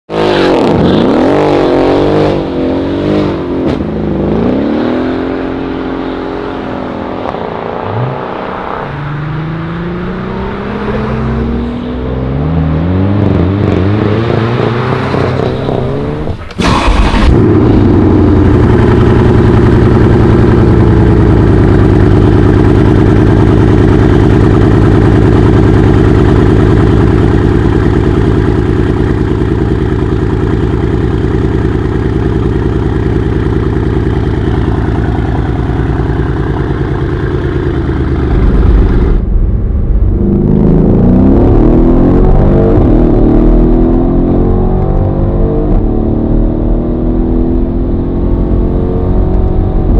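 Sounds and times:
car accelerating away: 0.1s - 49.9s
car engine revving: 0.1s - 49.9s
car engine idling loudly: 16.1s - 41.0s.

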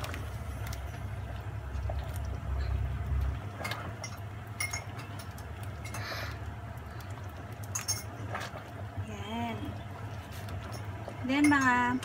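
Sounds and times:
low steady hum: 0.0s - 12.0s
spoon stirring in a steel pot: 9.8s - 12.0s.

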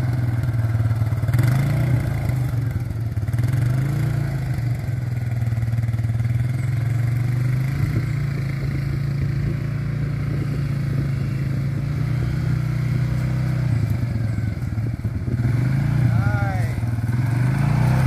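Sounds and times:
quad bike engine running: 0.0s - 18.0s.

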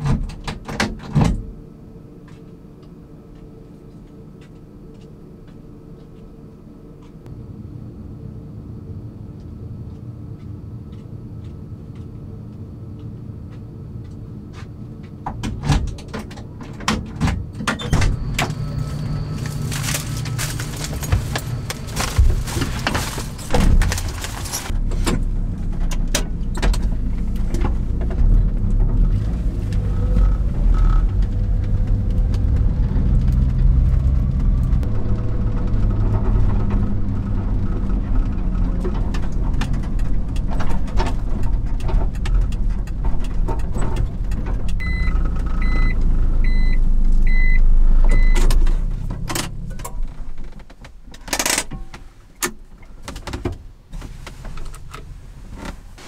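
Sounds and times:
truck engine and road noise: 0.0s - 56.0s
short electronic beeps: 44.8s - 48.5s.

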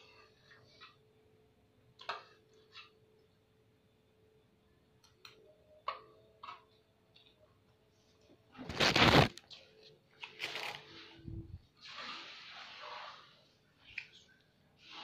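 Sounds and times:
faint steady hum: 0.0s - 12.7s.

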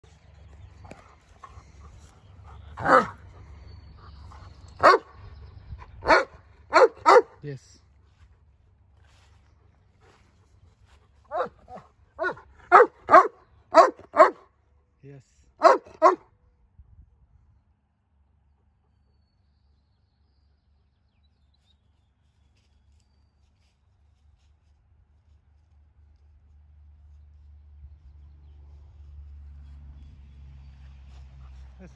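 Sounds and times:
dog barking: 2.8s - 3.2s, 4.8s - 5.1s, 6.0s - 7.4s, 11.3s - 14.5s, 15.6s - 16.3s.

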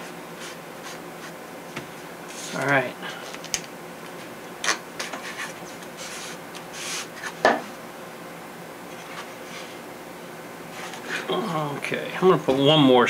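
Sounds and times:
hands rubbing tape: 4.6s - 7.4s.

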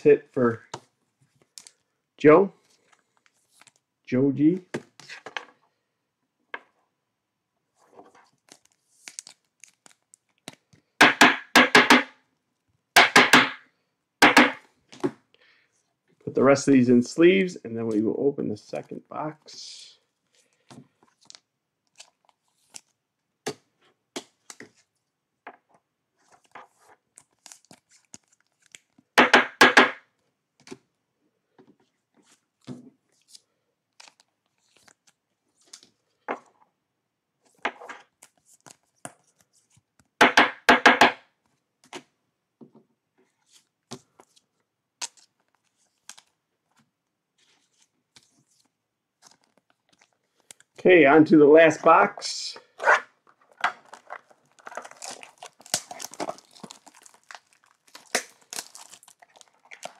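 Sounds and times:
cards clicking and rustling: 8.2s - 10.9s, 21.0s - 24.8s, 26.2s - 29.1s, 33.2s - 36.0s, 37.4s - 40.2s, 43.4s - 50.8s, 53.2s - 59.9s
plastic wrapping crinkling: 47.5s - 50.8s, 53.2s - 59.9s.

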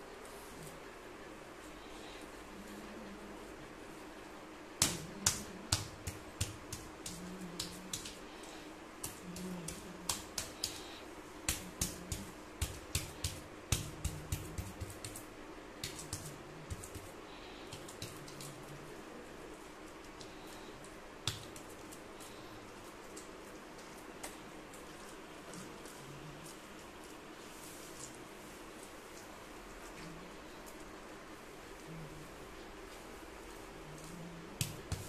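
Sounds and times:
steady low hum: 0.0s - 35.0s
hands slapping wet clay: 4.8s - 8.2s, 9.0s - 17.1s, 21.2s - 22.0s.

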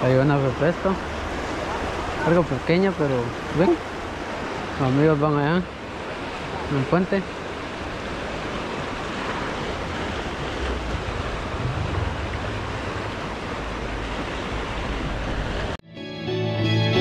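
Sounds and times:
river water flowing: 0.0s - 15.8s
wind rumble on microphone: 7.9s - 15.8s
guitar music: 15.9s - 17.0s.

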